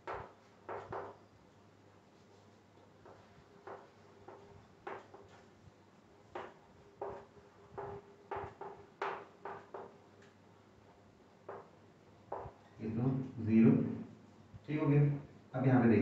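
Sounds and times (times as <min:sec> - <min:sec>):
chalk tapping and scraping on blackboard: 0:00.0 - 0:01.2, 0:02.2 - 0:05.5, 0:06.3 - 0:09.9
faint low hum: 0:00.0 - 0:16.0.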